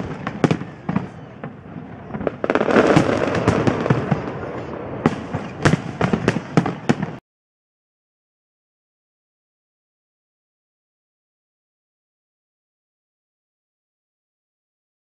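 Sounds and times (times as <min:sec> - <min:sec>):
fireworks bursting: 0:00.0 - 0:07.2.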